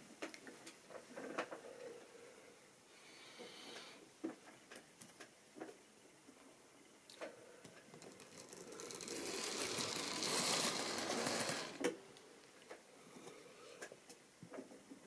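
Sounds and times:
model train motor whirring: 8.0 - 12.0.

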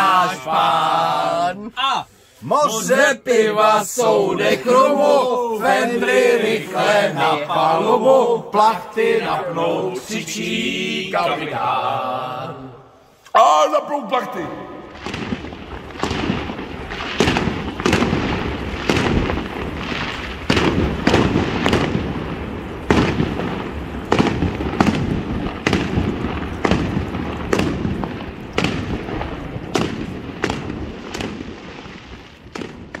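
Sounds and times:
fireworks bursting with sharp bangs: 14.6 - 33.0.

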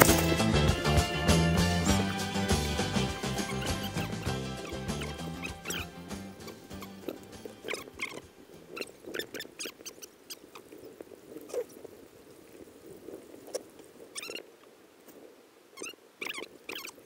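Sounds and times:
high squeaky chirps: 0.0 - 10.6, 14.2 - 14.4, 15.8 - 17.0.

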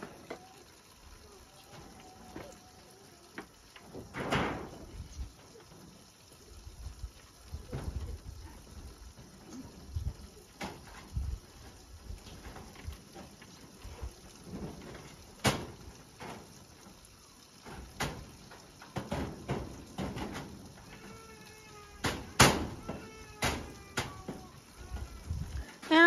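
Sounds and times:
drawn-out animal call: 20.8 - 22.0
knocks on wooden ladder: 22.0 - 24.4.

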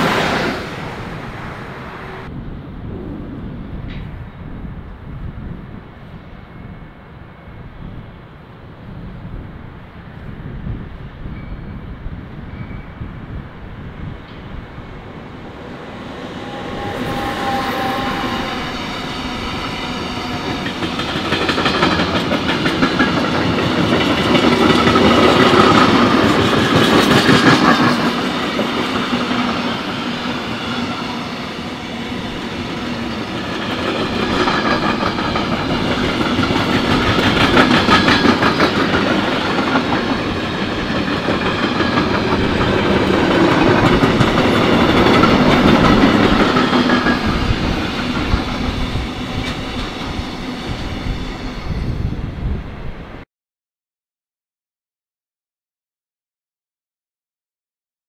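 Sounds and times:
freight train rumbling past: 0.0 - 53.2
wagon wheels clattering on rails: 33.6 - 48.5.

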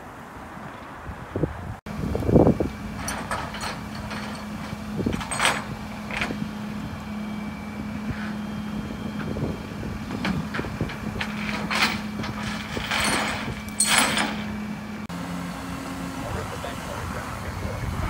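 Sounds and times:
tow truck engine humming: 0.0 - 18.0
metal clanks: 2.9 - 6.4, 10.1 - 14.8.

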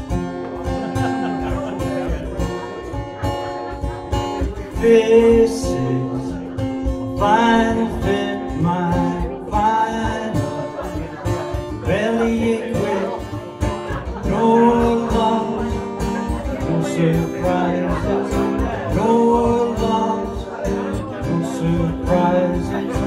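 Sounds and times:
strummed acoustic guitar: 0.0 - 23.0
cajon tapped by hand: 0.2 - 0.9
man singing: 1.0 - 23.0.

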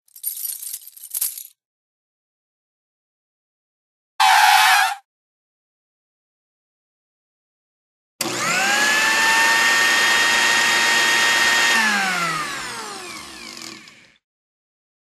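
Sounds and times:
small motor whining: 8.2 - 14.2.

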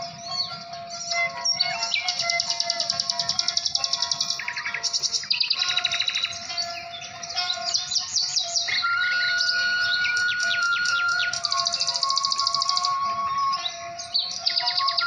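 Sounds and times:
birds trilling and chirping: 0.0 - 15.0
long steady whistle tone: 7.7 - 15.0.

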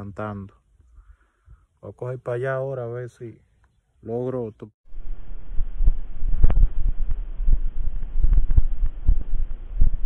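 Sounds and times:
steady low rumble: 4.9 - 10.0.

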